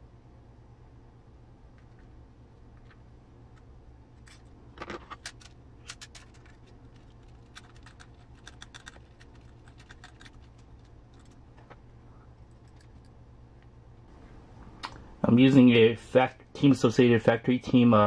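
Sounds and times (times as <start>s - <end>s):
small hardware clicks and ticks: 5.3s - 11.4s.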